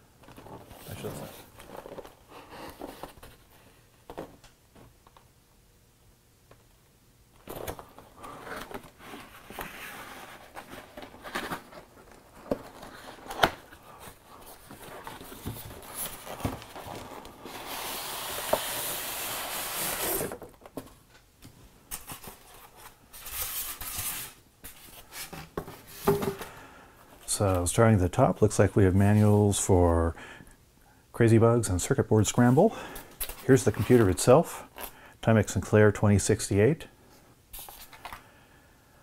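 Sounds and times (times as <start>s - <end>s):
cardboard rustling and scraping: 7.4s - 21.0s
cardboard sliding scrape: 15.4s - 20.4s.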